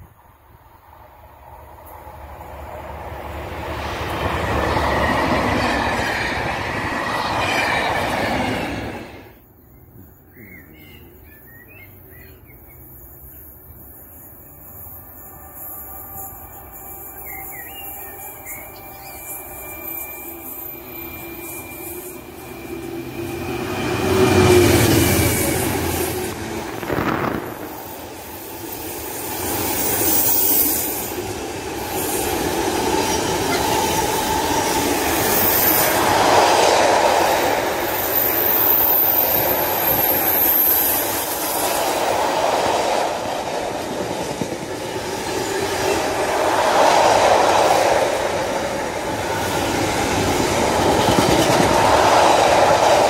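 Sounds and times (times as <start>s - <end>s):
freight train passing: 0.0s - 53.0s
high wheel squeal: 11.5s - 26.3s, 27.6s - 36.1s, 37.8s - 41.8s
wheels clattering on rails: 49.2s - 53.0s.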